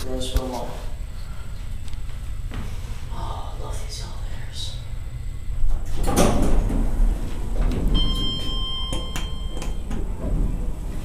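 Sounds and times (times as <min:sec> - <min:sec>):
elevator doors sliding: 0:05.6 - 0:11.0.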